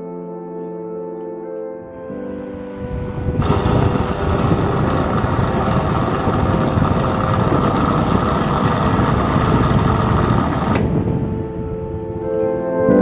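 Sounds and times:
electric fan running: 3.0 - 12.0.

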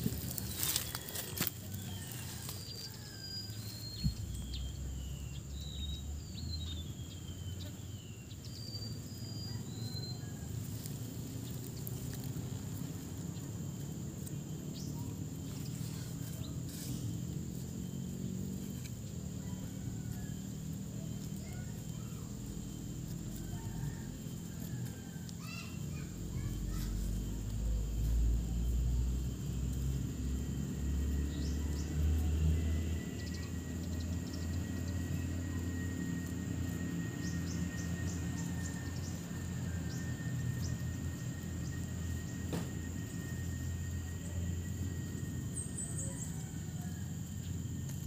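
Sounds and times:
birds chirping: 0.0 - 29.0
high-pitched whine: 0.0 - 48.0.

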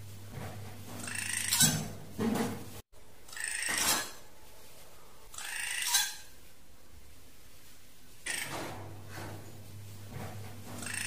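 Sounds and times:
drongo calling: 1.0 - 2.0, 5.3 - 6.4, 10.8 - 11.0.

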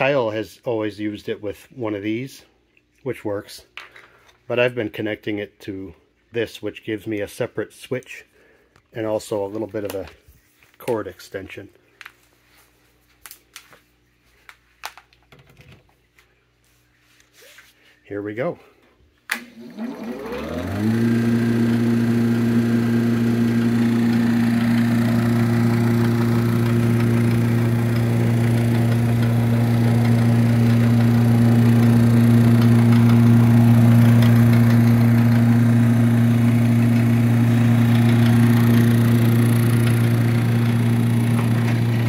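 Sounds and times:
vacuum cleaner motor humming: 19.3 - 42.0.

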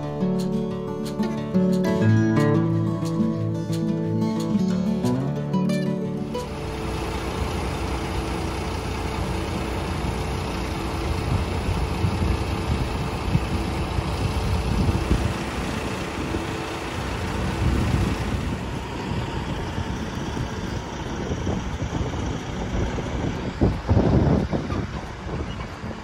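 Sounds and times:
combine harvester rumbling: 6.0 - 26.0.

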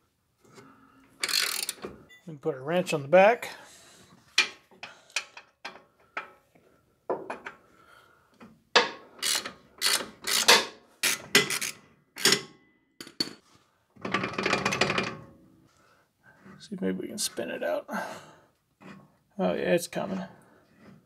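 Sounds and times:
ratchet clicks: 1.2 - 1.8, 9.2 - 11.8.

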